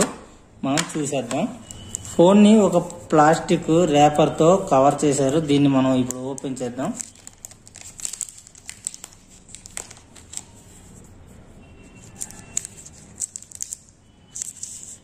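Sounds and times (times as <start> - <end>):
plastic wrapper crinkling: 4.6 - 11.0, 12.0 - 15.0.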